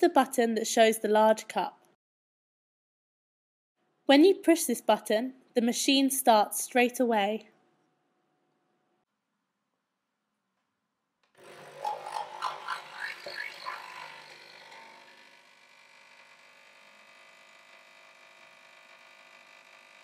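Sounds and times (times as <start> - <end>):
coffee machine pump buzzing: 11.4 - 20.0.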